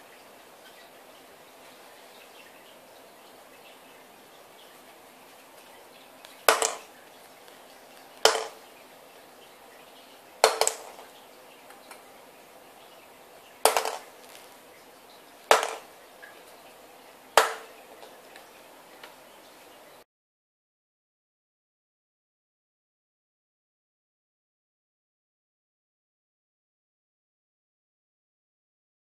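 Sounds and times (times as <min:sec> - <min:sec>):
ping-pong ball bouncing on glass: 0:06.4 - 0:06.9, 0:08.2 - 0:08.6, 0:10.4 - 0:11.0, 0:13.6 - 0:14.1, 0:15.5 - 0:15.9, 0:17.4 - 0:17.7.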